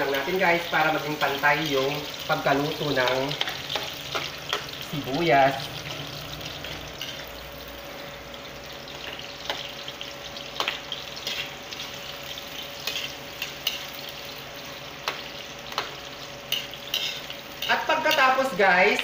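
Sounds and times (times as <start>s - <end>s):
onions sizzling in oil: 0.0s - 19.0s
metal spoon scraping wok: 3.3s - 7.4s, 16.5s - 18.4s.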